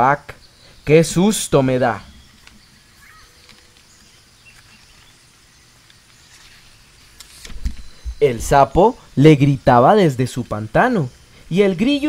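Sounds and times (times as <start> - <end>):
animal calls: 2.0 - 3.8.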